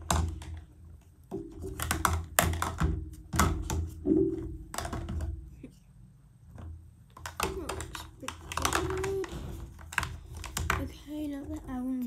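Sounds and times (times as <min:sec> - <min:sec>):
plastic containers clicking: 0:01.3 - 0:05.4, 0:07.1 - 0:11.9.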